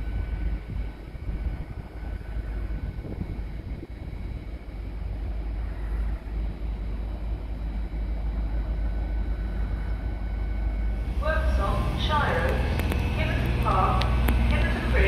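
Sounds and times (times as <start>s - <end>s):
low rumble: 0.0s - 15.0s.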